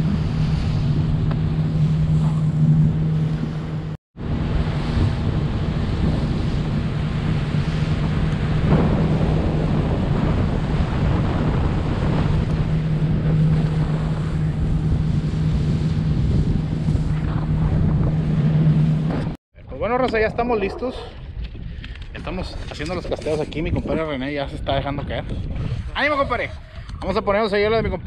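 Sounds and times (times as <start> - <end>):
boat engine running: 0.0 - 19.4
wind buffeting microphone: 0.0 - 28.0.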